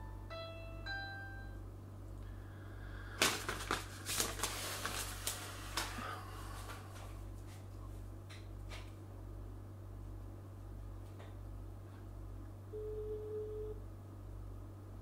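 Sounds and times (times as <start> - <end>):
steady low hum: 0.0 - 15.0
paper crinkling and rustling: 3.2 - 6.0.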